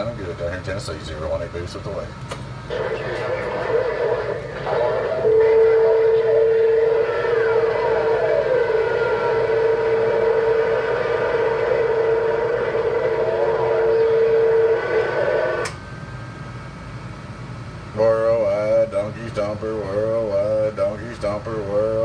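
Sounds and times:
radio static hiss: 2.6 - 15.7
radio whistle: 2.7 - 15.7.

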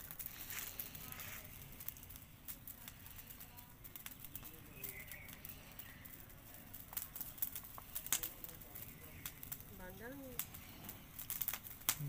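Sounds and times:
brush fire crackling: 0.0 - 12.0.

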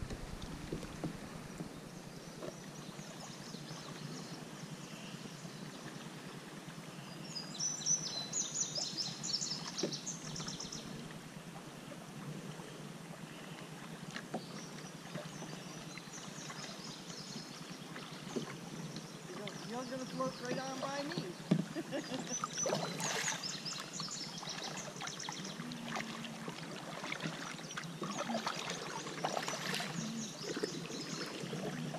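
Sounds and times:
light splashes: 0.0 - 2.7, 19.3 - 31.9
river water washing against hull: 0.0 - 4.4, 8.1 - 31.9.

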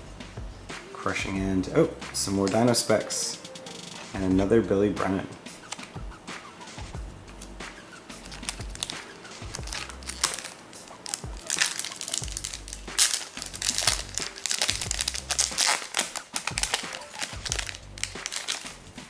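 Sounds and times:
foil wrapper crinkling: 8.2 - 19.0.

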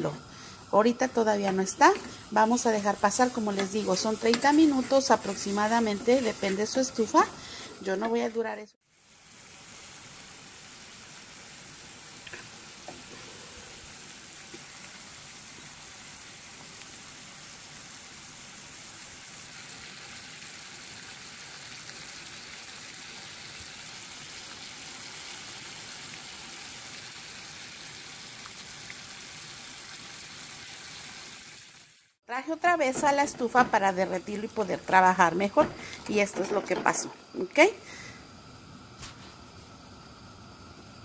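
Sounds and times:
syrup boiling in a pot: 8.8 - 32.6, 37.0 - 41.0.

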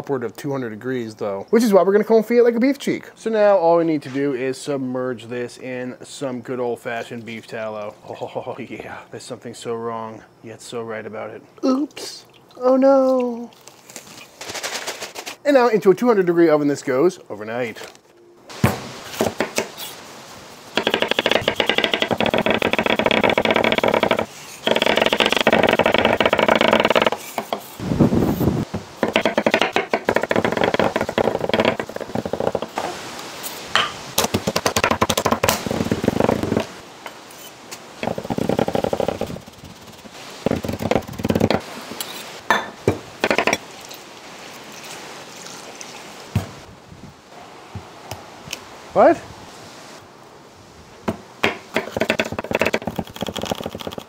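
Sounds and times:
knife chopping on wooden board: 20.8 - 27.6, 29.0 - 32.7.

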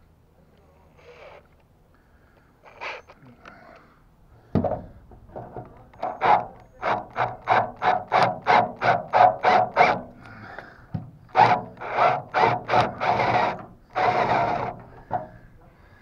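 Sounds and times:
cordless drill bursts: 6.0 - 10.2, 11.3 - 15.2.

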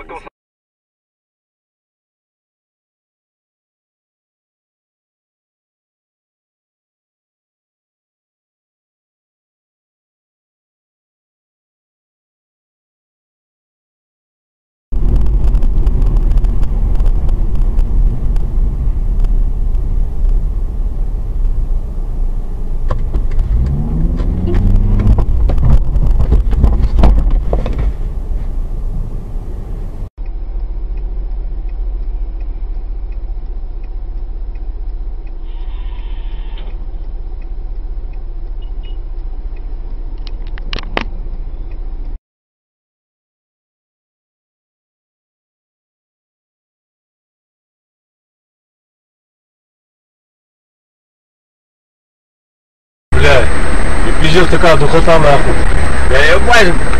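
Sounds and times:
car engine and road noise: 0.0 - 0.3, 14.9 - 42.2, 53.1 - 56.9
engine revving up: 15.0 - 30.1.

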